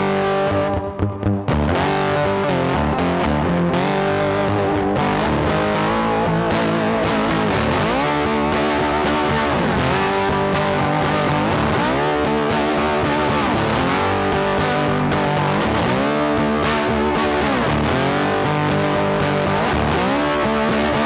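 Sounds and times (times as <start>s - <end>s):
instrumental guitar music: 0.0s - 21.0s.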